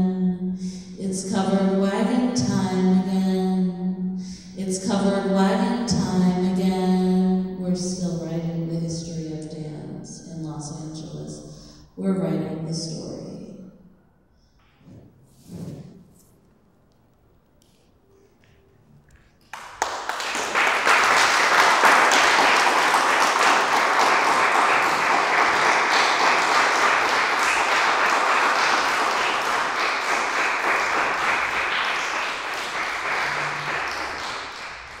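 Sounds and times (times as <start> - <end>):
audience applauding: 19.1 - 35.0.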